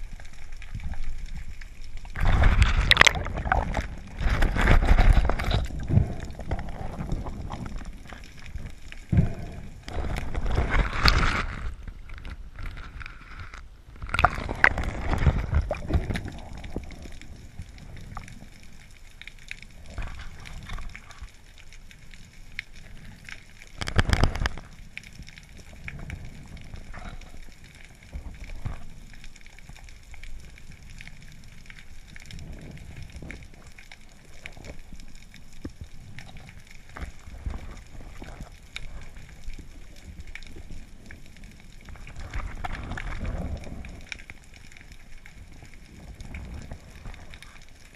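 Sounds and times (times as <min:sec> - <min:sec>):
rush of water: 0:00.0 - 0:18.9, 0:32.3 - 0:47.9
muffled underwater water noise: 0:00.0 - 0:47.9.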